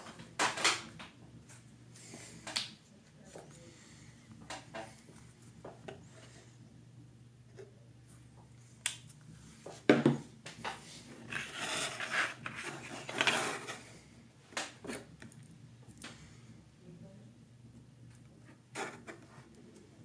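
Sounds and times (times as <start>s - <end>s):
rubbing and rustling: 10.7s - 13.9s.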